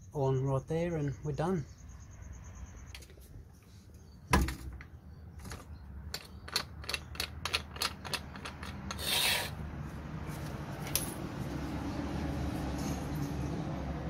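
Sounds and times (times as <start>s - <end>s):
bottle jack clicking and creaking: 5.4s - 9.6s
short rasping rush: 8.9s - 9.6s.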